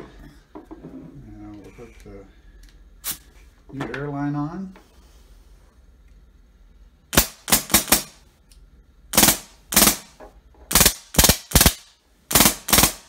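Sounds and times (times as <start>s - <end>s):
sharp puffs of air: 3.0s - 3.4s, 7.1s - 8.2s, 9.1s - 13.0s.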